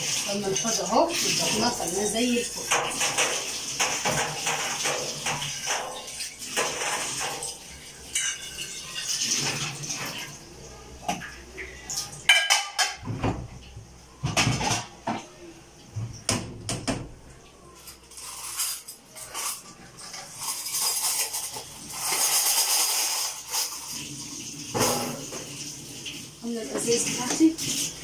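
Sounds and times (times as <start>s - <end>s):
tap water running into sink: 0.0s - 15.2s, 15.8s - 28.0s
metal dishes clattering: 0.3s - 10.3s, 11.0s - 13.5s, 14.2s - 15.3s, 17.8s - 23.9s, 24.7s - 25.5s.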